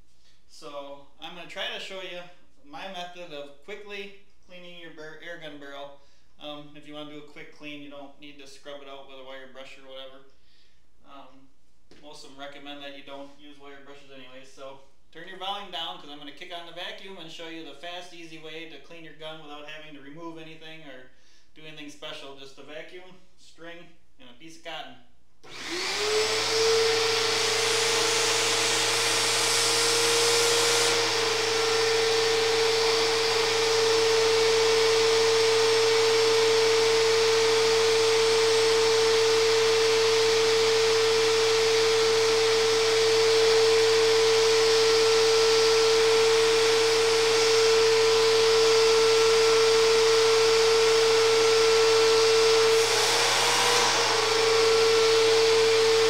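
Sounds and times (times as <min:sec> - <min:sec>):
vacuum cleaner motor whine: 0:25.4 - 0:56.0.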